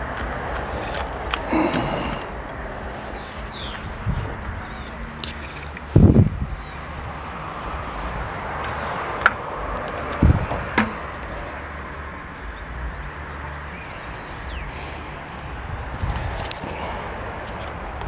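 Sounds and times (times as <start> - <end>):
sharp clicks: 15.3 - 18.0.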